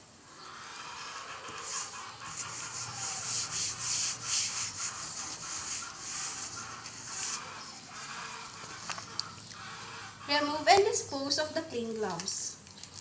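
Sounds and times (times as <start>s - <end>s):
wipe rubbing on table: 1.5s - 8.2s.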